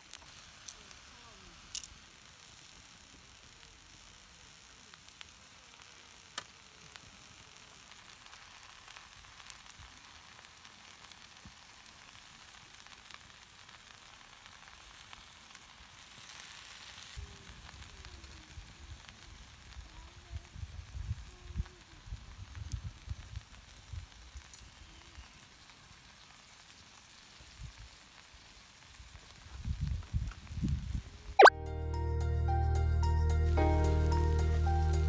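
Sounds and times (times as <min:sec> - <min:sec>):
food sizzling in a pan: 0:00.0 - 0:31.4, 0:33.4 - 0:35.0.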